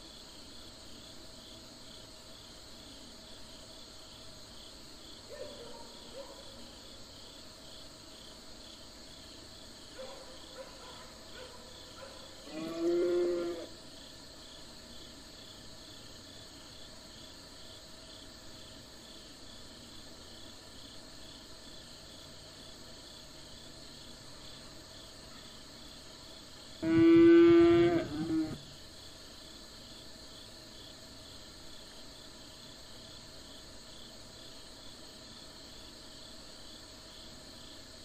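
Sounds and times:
insects chirping: 0.0 - 38.0
cow mooing: 12.5 - 13.7, 26.8 - 28.6.

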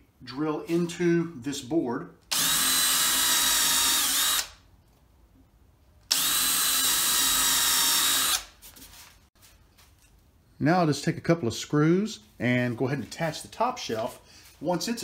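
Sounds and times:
cordless drill boring into wood: 2.3 - 4.6, 6.1 - 8.5.

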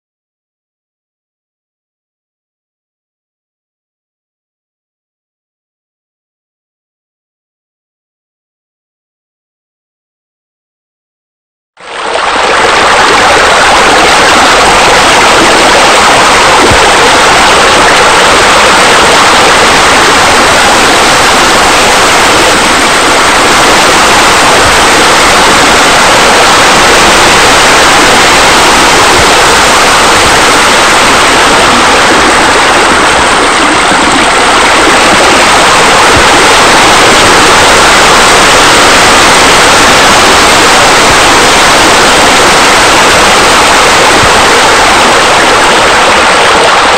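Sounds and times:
rush of falling water: 11.8 - 46.9.

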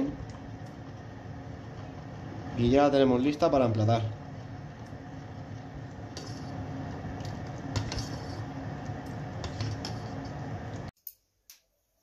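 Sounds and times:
ladle stirring sauce in a saucepan: 3.4 - 10.9.

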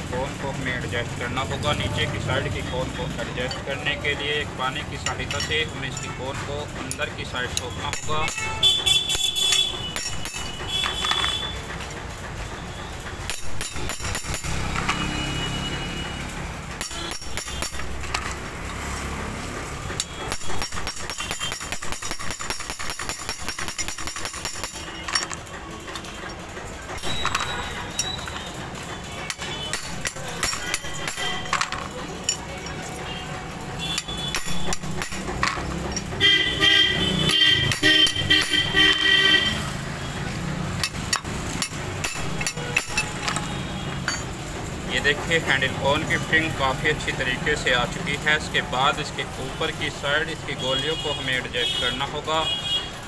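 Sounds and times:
hammer tapping on metal: 7.6 - 12.0, 13.2 - 15.2, 16.7 - 18.5, 19.9 - 39.6, 40.8 - 44.4.

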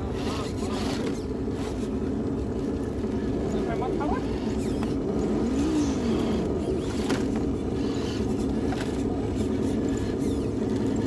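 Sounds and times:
electric motor whirring: 4.1 - 11.0.

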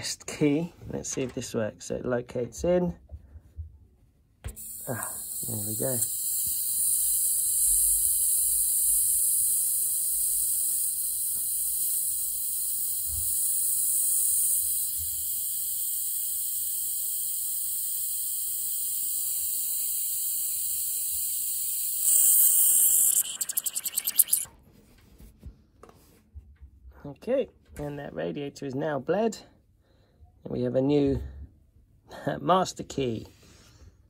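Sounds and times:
air hissing from radiator valve: 4.5 - 24.5
valve sputtering: 4.5 - 24.5.

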